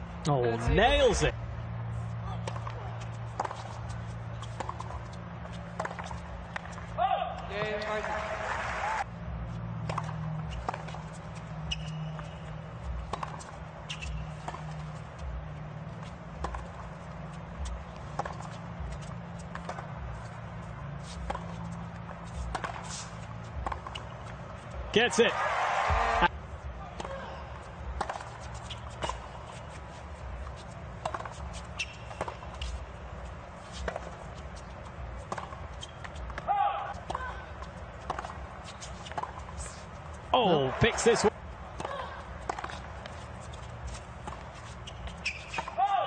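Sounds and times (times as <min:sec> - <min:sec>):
low stadium background: 0:00.0 - 0:46.0
racket striking tennis ball: 0:13.1 - 0:14.7, 0:18.0 - 0:19.9, 0:22.4 - 0:24.1, 0:31.0 - 0:32.8
ball bouncing on hard court: 0:16.4 - 0:16.8, 0:17.6 - 0:19.9, 0:22.4 - 0:22.9, 0:23.6 - 0:24.1, 0:38.0 - 0:38.4
tennis ball hit by racket: 0:22.4 - 0:23.0.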